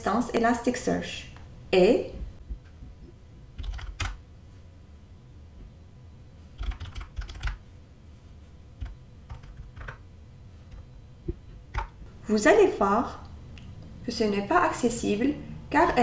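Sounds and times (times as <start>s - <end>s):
computer keyboard typing: 3.6s - 4.2s, 6.6s - 7.6s, 8.8s - 10.0s, 11.7s - 12.0s.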